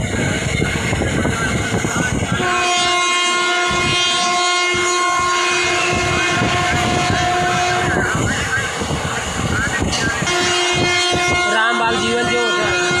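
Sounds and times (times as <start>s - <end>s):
moving train rumble: 0.0s - 13.0s
train horn blast: 2.0s - 8.3s, 10.0s - 13.0s.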